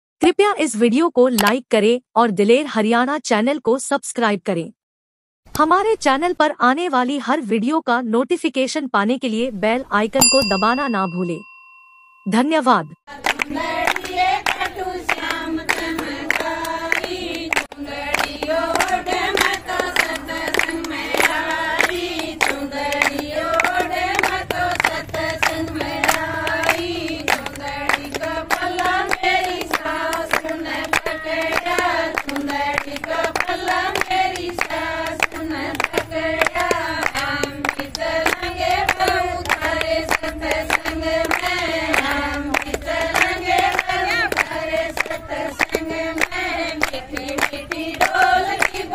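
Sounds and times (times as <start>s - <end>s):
hand-clapping beat: 13.1s - 48.9s
women singing folk song: 13.1s - 48.9s.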